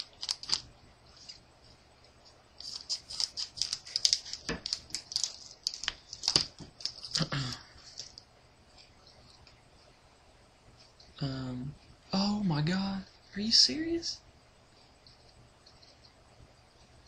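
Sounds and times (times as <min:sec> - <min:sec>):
foil pack crinkling: 0:00.0 - 0:00.7, 0:02.6 - 0:08.2.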